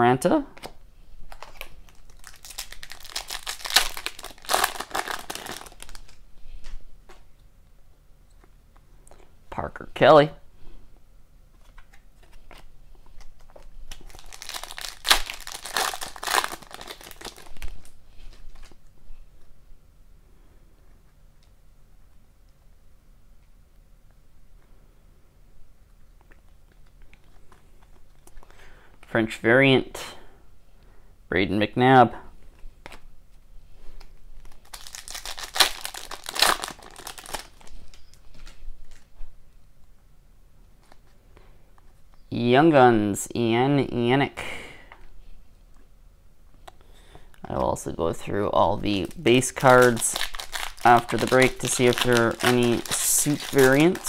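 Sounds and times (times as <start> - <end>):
foil wrapper tearing and crinkling: 1.3 - 6.2, 13.5 - 18.8, 34.4 - 39.1, 48.9 - 54.0.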